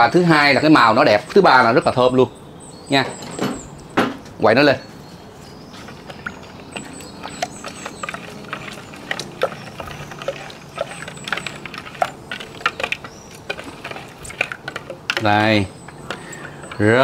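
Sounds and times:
wooden spoon stirring sauce: 5.3s - 17.0s.

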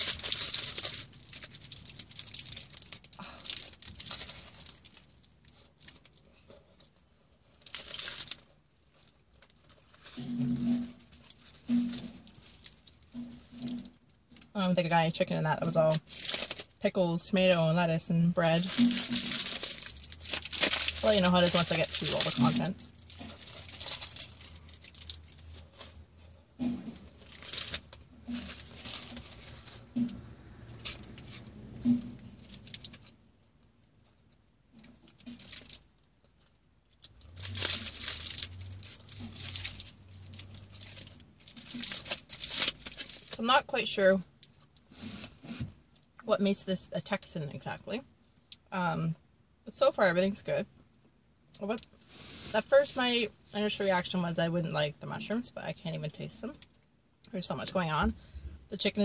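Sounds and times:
aluminium foil crinkling: 0.0s - 30.1s, 34.7s - 45.6s.

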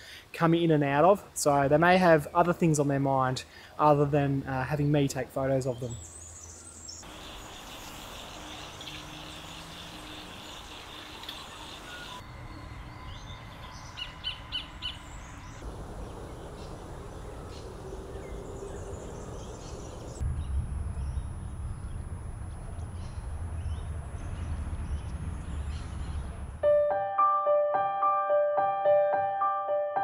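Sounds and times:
low rumble: 12.2s - 26.6s.

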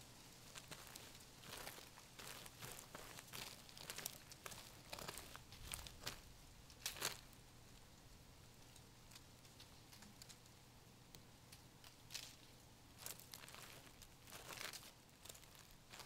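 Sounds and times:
footsteps crunching in dry leaves: 0.0s - 7.3s, 13.0s - 16.0s.

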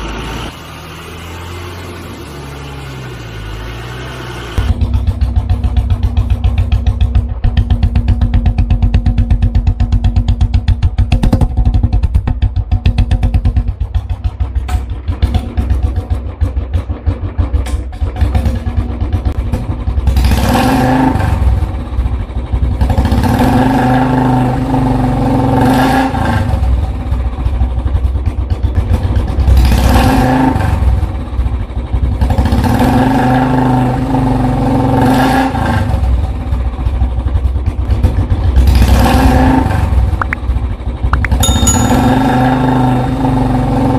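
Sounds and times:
motorcycle engine revving: 0.0s - 43.9s
sharp clicks: 40.2s - 40.4s
short chime: 41.2s - 42.9s.

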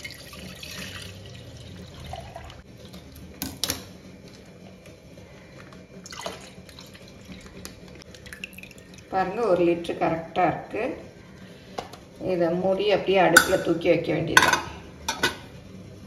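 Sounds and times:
milk pouring into steel pot: 6.0s - 9.2s.

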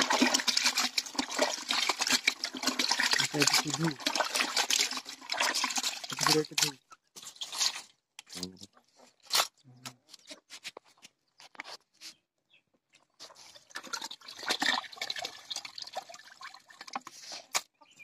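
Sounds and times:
water splashing and dripping: 0.0s - 8.5s, 13.3s - 17.7s.

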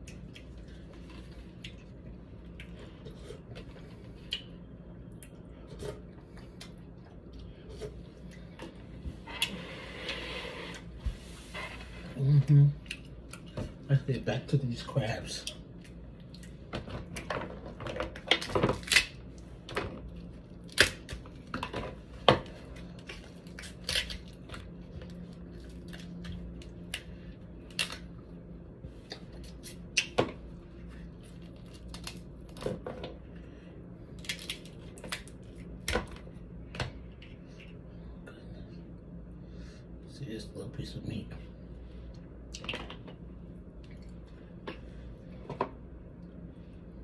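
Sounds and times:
crab shells cracking: 18.2s - 19.2s, 23.4s - 24.4s, 27.7s - 28.1s, 34.2s - 36.0s.

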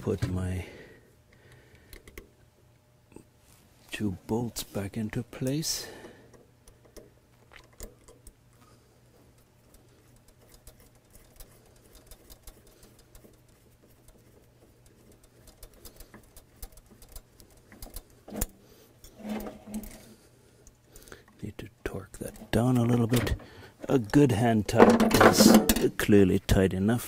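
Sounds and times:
low steady hum: 0.0s - 27.0s
bolts clicking and ticking: 1.3s - 2.5s, 5.0s - 8.6s, 9.3s - 19.2s, 20.6s - 26.3s.

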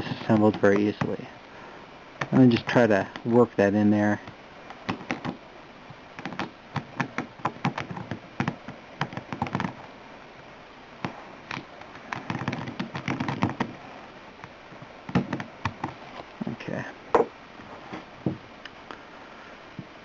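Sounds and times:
fingertips clicking on plastic: 4.2s - 5.4s, 6.2s - 9.8s, 11.5s - 13.8s, 15.1s - 16.0s
rubbing and scratching: 6.2s - 9.8s, 11.0s - 14.0s, 15.1s - 16.6s.

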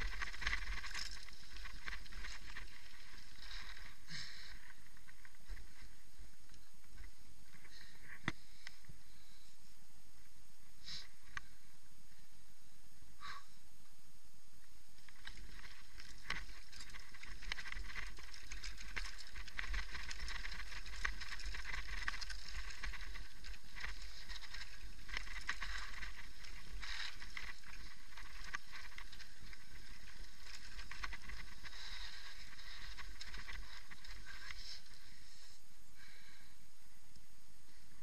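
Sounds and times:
tyres crunching over gravel: 0.0s - 4.0s, 15.0s - 34.7s.

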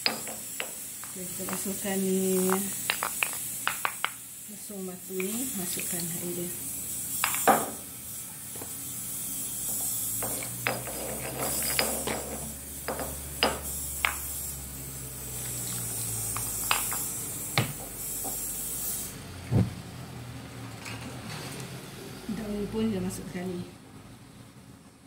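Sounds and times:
vegetables sizzling in frying pan: 0.0s - 18.7s.

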